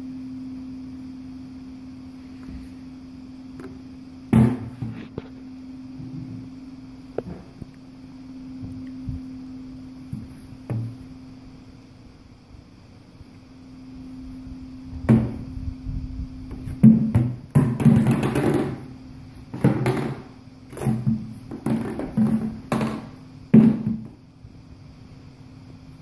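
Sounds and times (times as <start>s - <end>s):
steady low hum: 0.0s - 26.0s
plastic canister knocking: 15.1s - 15.4s, 16.8s - 18.8s, 19.5s - 24.1s.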